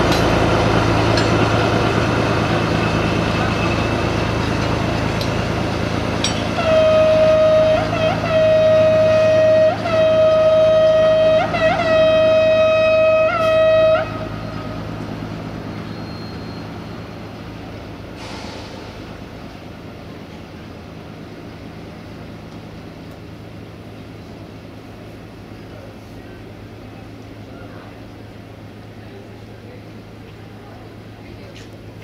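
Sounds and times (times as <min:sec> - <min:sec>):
diesel engine running: 0:00.0 - 0:32.0
locomotive horn blasts: 0:06.5 - 0:14.8.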